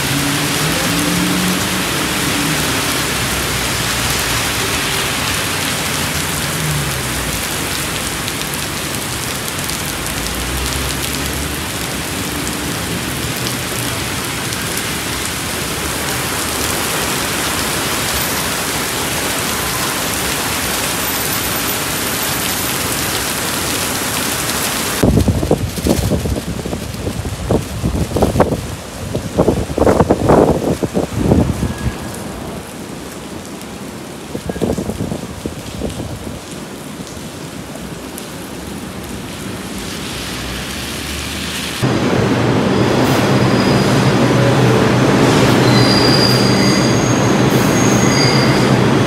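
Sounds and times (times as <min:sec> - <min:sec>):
heavy rain on pavement and cars: 0:00.0 - 0:49.0
wind buffeting microphone: 0:25.0 - 0:32.2.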